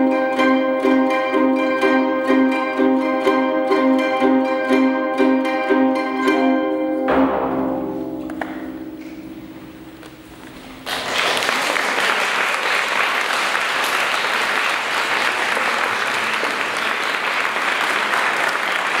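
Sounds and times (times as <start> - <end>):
koto ensemble: 0.0 - 12.1
audience applause: 10.7 - 19.0.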